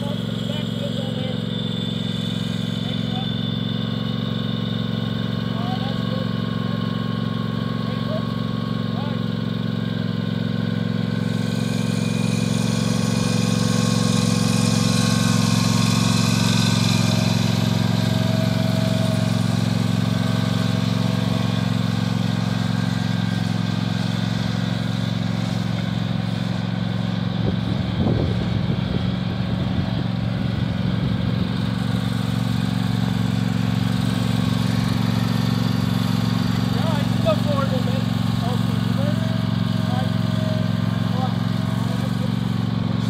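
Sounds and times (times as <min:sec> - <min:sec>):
riding lawn mower engine running: 0:00.0 - 0:43.0.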